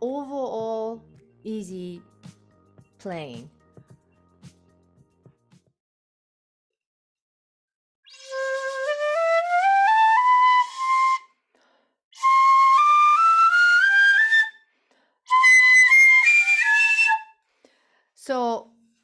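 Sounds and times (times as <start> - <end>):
bamboo flute playing scales: 8.1 - 11.3, 12.2 - 14.6, 15.3 - 17.4
flute player breath: 11.6 - 12.0, 17.4 - 18.1.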